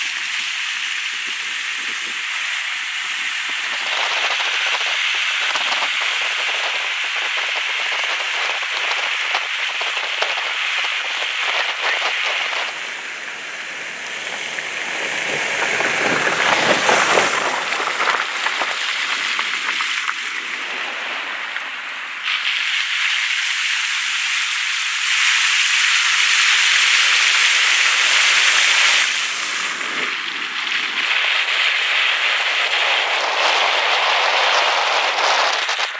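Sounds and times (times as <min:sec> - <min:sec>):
heavy rain on car roof: 0:00.0 - 0:13.1, 0:13.8 - 0:23.2
tyres hissing through water: 0:00.0 - 0:35.9.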